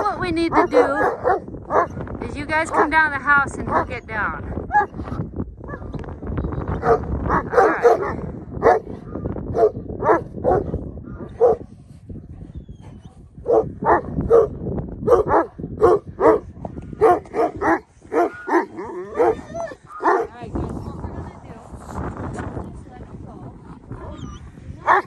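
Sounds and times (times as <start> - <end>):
dogs barking: 0.0 - 1.9, 2.6 - 5.0, 6.8 - 8.9, 9.5 - 11.6, 13.4 - 20.4, 24.0 - 25.0.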